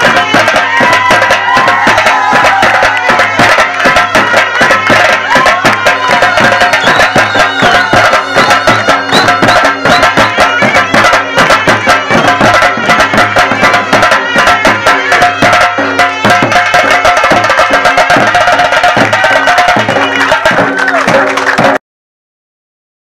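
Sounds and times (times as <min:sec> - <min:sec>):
barrel drums beaten with sticks: 0:00.0 - 0:21.8
sustained high melody: 0:03.1 - 0:12.8.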